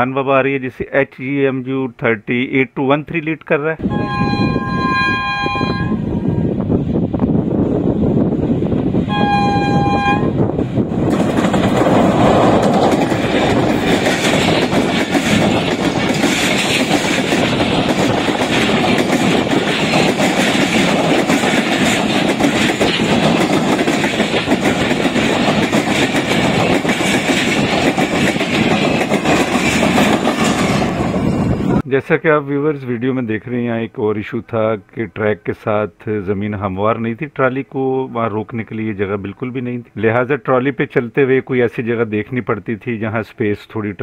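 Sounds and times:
locomotive horn: 3.8 - 6.6, 9.1 - 10.5
train wheels rumbling on rails: 3.9 - 31.9.

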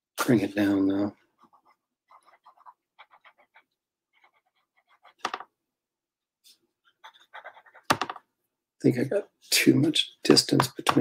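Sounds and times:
pencil scratching on paper: 1.1 - 5.5, 6.5 - 8.2.

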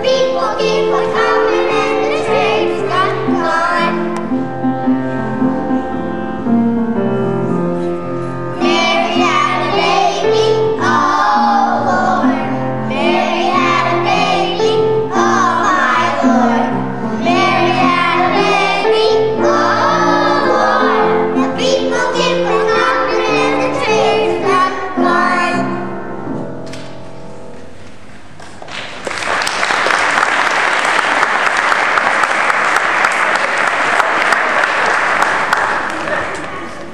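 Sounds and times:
children's choir singing: 0.0 - 6.2, 8.5 - 26.2
held accompaniment notes: 0.0 - 28.2
applause: 28.4 - 36.8.

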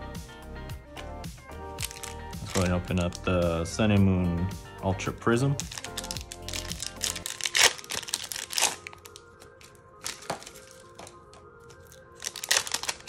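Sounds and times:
quiet background music: 0.0 - 13.0
foil wrapper crackling and tearing: 1.8 - 3.3, 5.6 - 13.0.

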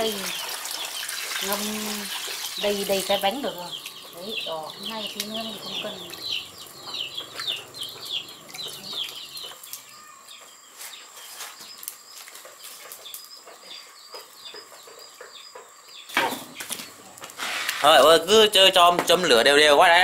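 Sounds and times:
chicks peeping: 0.0 - 18.0.

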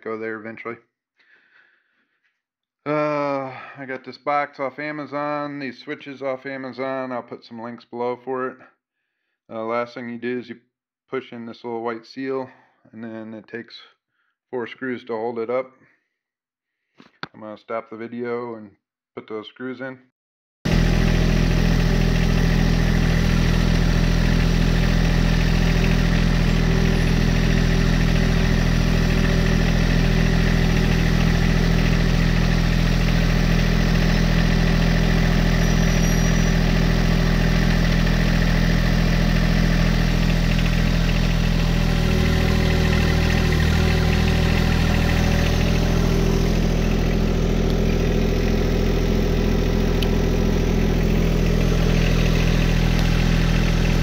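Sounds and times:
tractor diesel engine idling: 20.7 - 54.0.

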